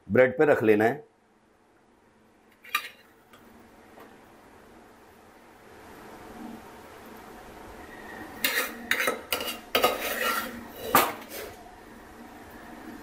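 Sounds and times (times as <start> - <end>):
utensil clinking and scraping pot: 2.6 - 3.1, 8.4 - 11.6.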